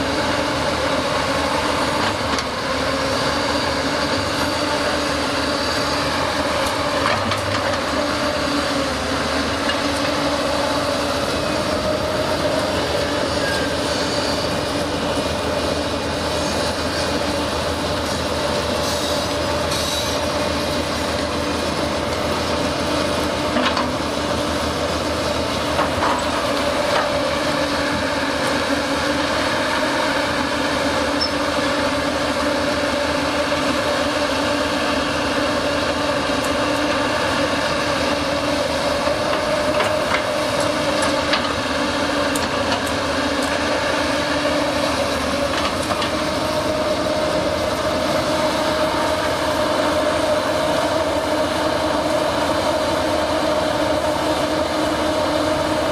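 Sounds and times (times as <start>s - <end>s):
excavator diesel engine droning: 0.0s - 55.9s.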